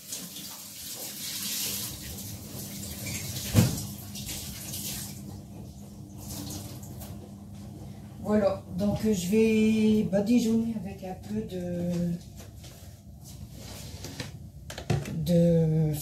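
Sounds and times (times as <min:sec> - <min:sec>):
tap running into sink: 0:03.0 - 0:05.1.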